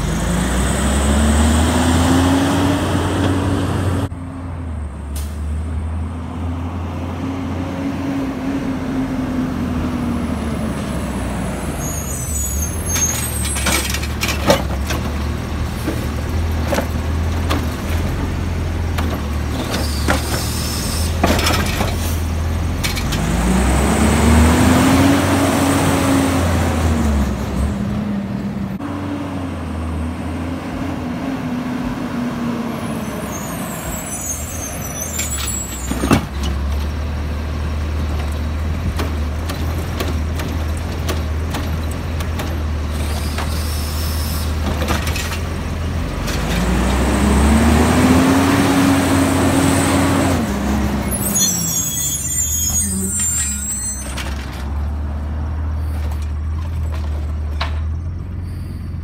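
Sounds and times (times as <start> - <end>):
garbage truck engine revving: 0.0 - 4.1, 7.0 - 57.4
hydraulic arm emptying cart: 12.7 - 23.3, 38.2 - 45.6, 51.0 - 54.8.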